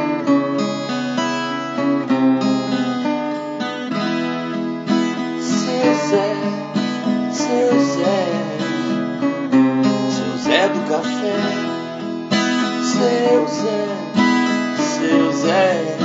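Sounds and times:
acoustic guitar strumming chords: 0.0s - 16.0s.

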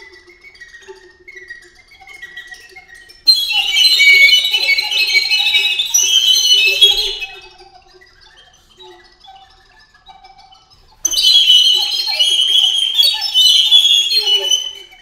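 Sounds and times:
recorders playing: 3.3s - 7.4s, 11.1s - 15.0s.

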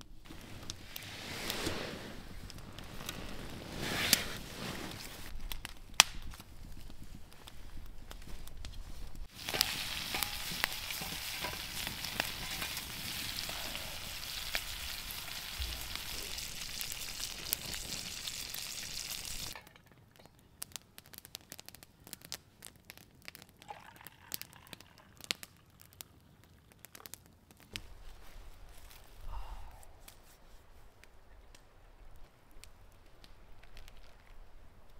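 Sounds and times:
food sizzling in a skillet: 9.2s - 19.6s.

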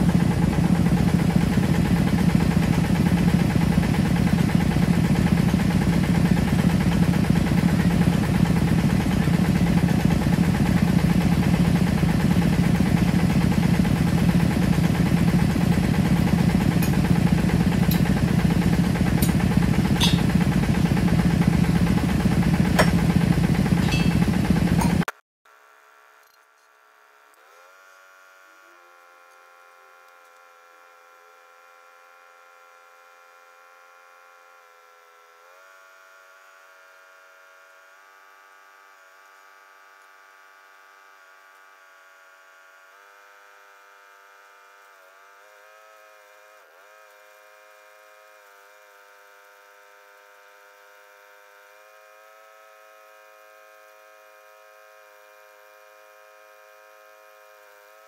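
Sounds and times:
drilling rig engine humming: 0.0s - 25.1s.

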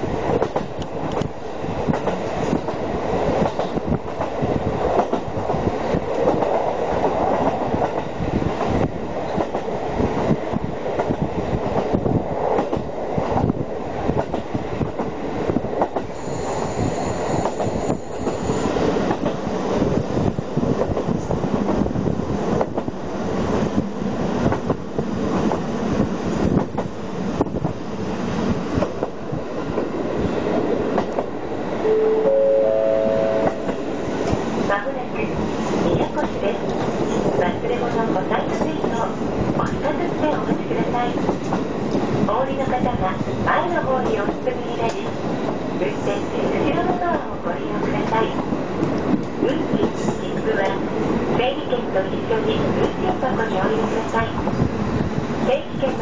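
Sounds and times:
railcar wheels and engine rumble: 0.0s - 56.0s
high whine: 31.8s - 34.3s.

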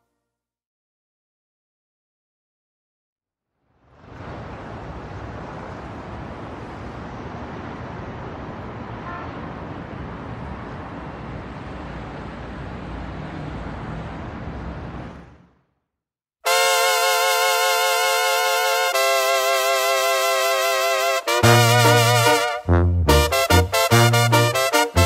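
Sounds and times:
road traffic rushing: 3.8s - 15.8s, 16.5s - 25.0s
faint horn toot: 9.0s - 9.5s.

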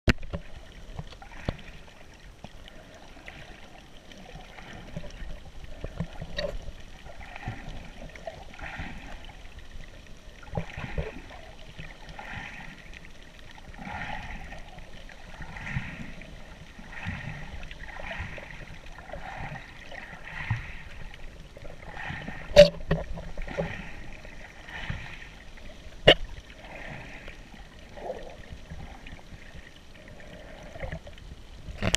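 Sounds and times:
water sloshing and gurgling: 0.1s - 31.9s.

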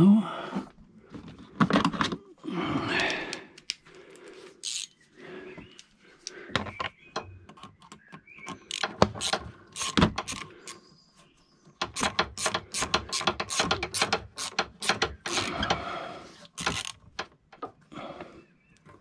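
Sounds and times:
hand ratchet clicking: 4.6s - 4.9s, 7.5s - 10.8s, 11.8s - 15.8s, 16.5s - 17.3s.

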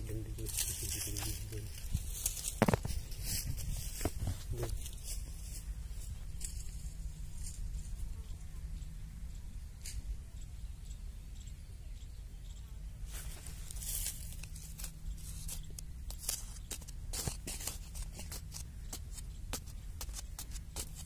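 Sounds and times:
soil crunching and scattering: 0.5s - 4.7s, 13.1s - 21.0s
digging tool scraping soil: 13.1s - 21.0s.

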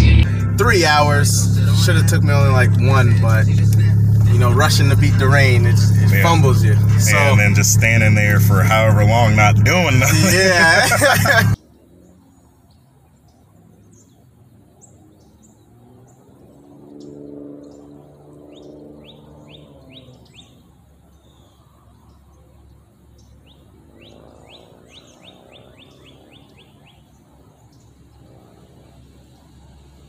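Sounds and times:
low hum: 0.0s - 12.5s
small birds chirping: 11.0s - 30.0s.

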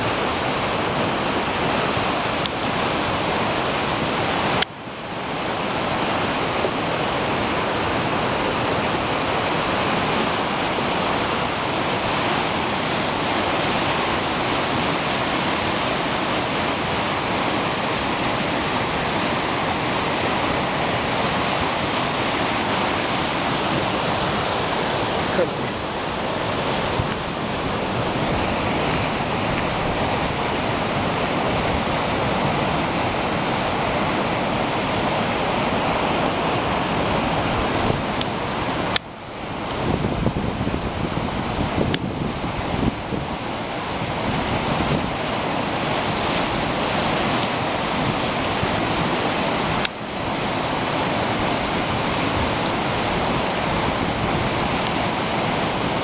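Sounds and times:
flooded stream torrent: 0.0s - 56.0s
wind on microphone: 5.2s - 56.0s.

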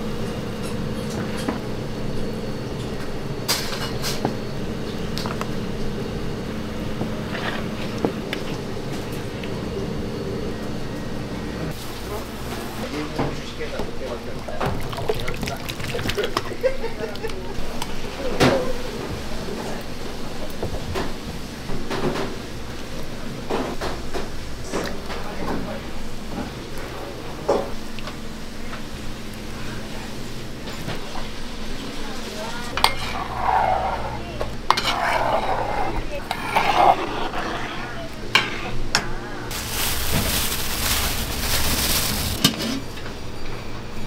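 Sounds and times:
low machine hum: 0.0s - 44.0s
plastic spatula scraping thick sauce: 34.8s - 38.0s.

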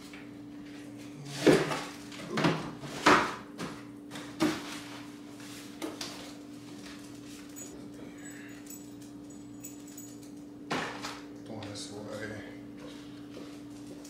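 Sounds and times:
objects knocking and thudding: 1.4s - 4.8s.

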